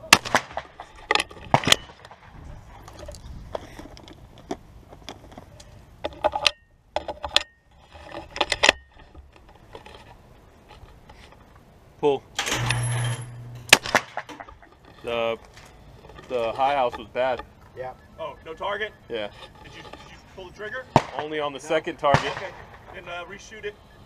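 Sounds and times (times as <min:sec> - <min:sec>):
shotgun handling clicks and clatters: 0:00.2 - 0:11.7, 0:13.7 - 0:17.7
wind rumble on microphone: 0:01.4 - 0:04.5.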